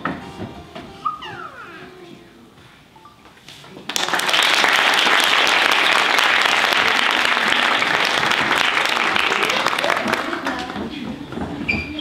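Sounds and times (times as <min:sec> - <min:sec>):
audience applause: 0:03.9 - 0:10.7.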